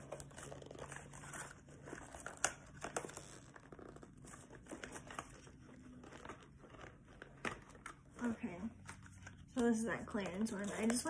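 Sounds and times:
packaging crinkling and rustling: 0.0 - 11.0.

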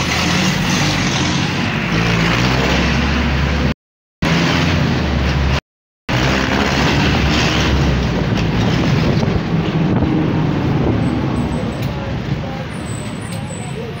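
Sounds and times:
vehicle road and engine noise: 0.0 - 14.0
wind on microphone: 7.6 - 13.2.

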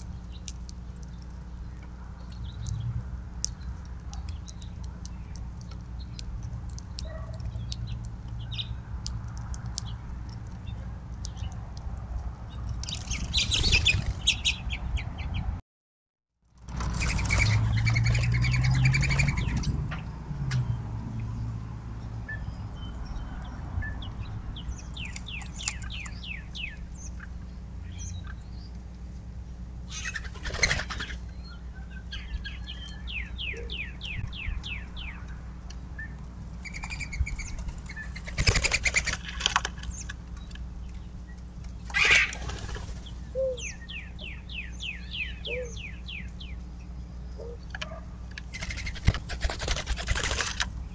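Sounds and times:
songbird trill: 20.6 - 28.8, 29.8 - 39.2, 42.9 - 48.0
dove wings fluttering: 30.0 - 31.2, 36.7 - 39.9, 41.9 - 43.2, 48.5 - 50.8.

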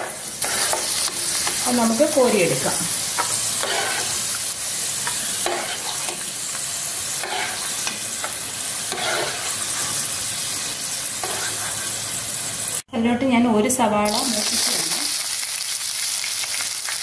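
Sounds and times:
spoon scraping pan: 0.0 - 1.9, 3.1 - 4.4, 5.0 - 10.2, 11.2 - 12.1
nuts sizzling in oil: 0.0 - 12.9, 14.1 - 17.0.

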